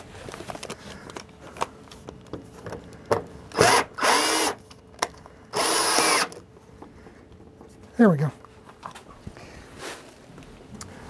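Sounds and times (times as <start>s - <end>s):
drill driving screw into wood: 3.5s - 4.6s, 5.5s - 6.4s.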